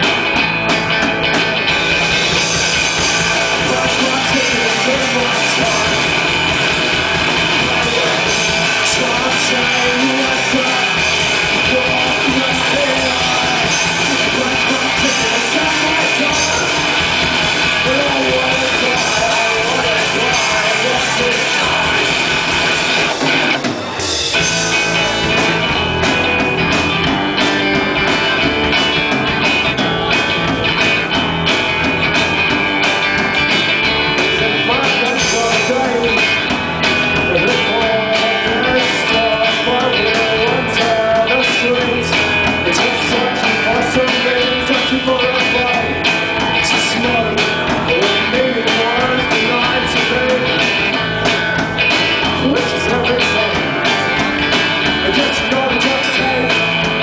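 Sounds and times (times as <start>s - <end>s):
bass guitar: 0.0s - 57.0s
drum kit: 0.0s - 57.0s
electric guitar: 0.0s - 57.0s.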